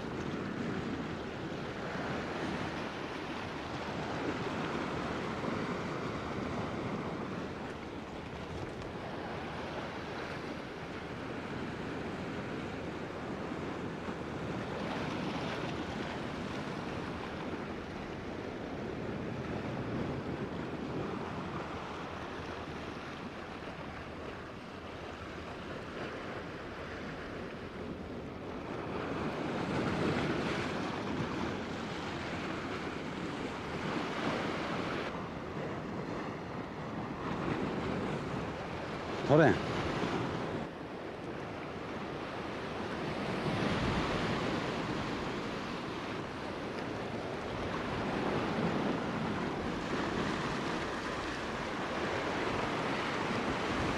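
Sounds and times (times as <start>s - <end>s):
surf washing against rocks: 28.6s - 53.9s.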